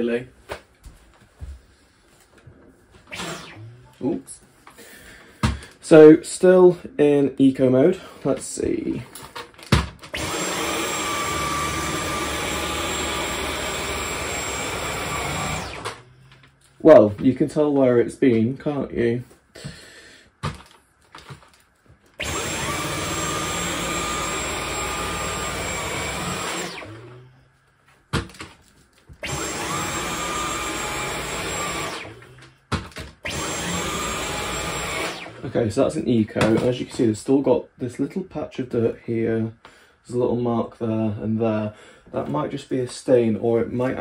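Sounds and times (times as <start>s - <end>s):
vacuum cleaner motor whining: 3.1s - 4.1s, 10.1s - 16.1s, 22.2s - 27.4s, 29.2s - 32.6s, 33.2s - 35.5s.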